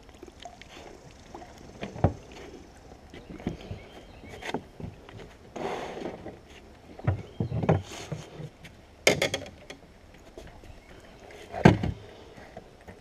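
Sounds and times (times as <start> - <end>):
landing net bumping against boat: 9.0 - 9.8.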